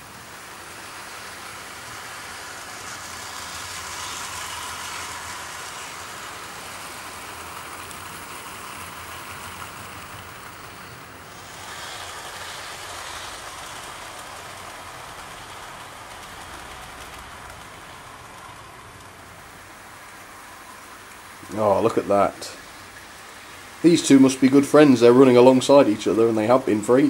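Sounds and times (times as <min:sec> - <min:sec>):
model train wheels rolling on track: 0:00.0 - 0:27.0.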